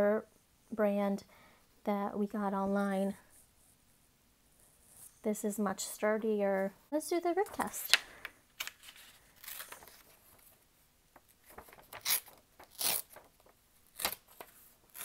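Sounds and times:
paper tearing: 0:08.6 - 0:10.4, 0:11.4 - 0:15.0.

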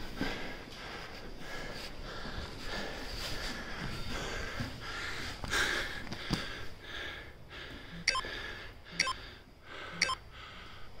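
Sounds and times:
rustling of grappling on mats: 0:00.0 - 0:05.6.

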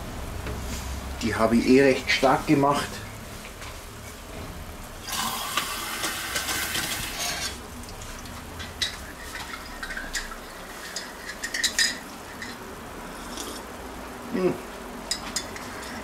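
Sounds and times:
water running: 0:05.0 - 0:12.9
spoon clinking and scraping in a pot: 0:08.6 - 0:12.6, 0:15.0 - 0:16.0.

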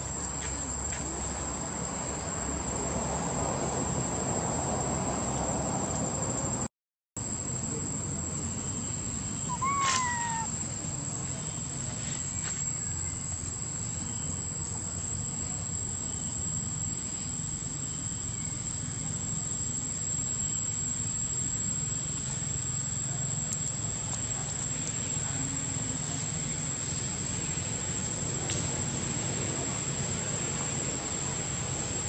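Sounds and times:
low outdoor rumble: 0:00.0 - 0:32.0
macaque call: 0:09.4 - 0:10.7.

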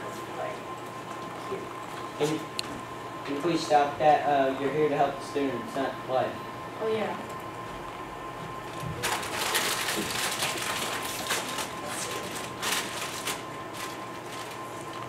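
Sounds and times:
chip bag crinkling: 0:08.8 - 0:15.0.

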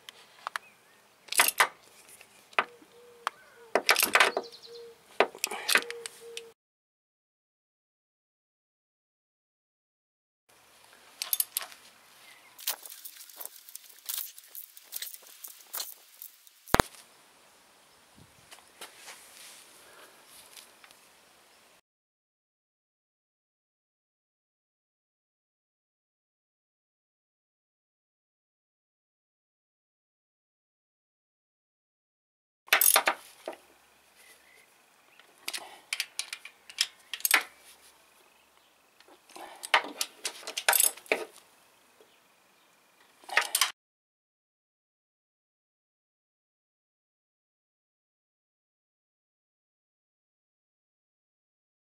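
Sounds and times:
metal tools clinking: 0:01.3 - 0:02.2, 0:03.9 - 0:04.4, 0:11.2 - 0:11.7, 0:12.6 - 0:16.4, 0:32.7 - 0:33.1, 0:39.6 - 0:41.3
metallic clicks of a wrench: 0:11.2 - 0:11.7.

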